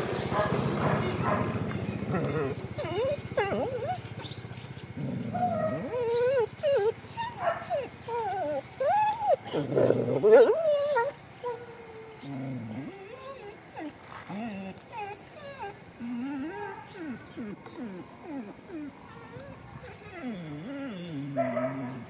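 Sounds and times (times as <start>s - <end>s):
dog whining and whimpering: 0.7s - 22.0s.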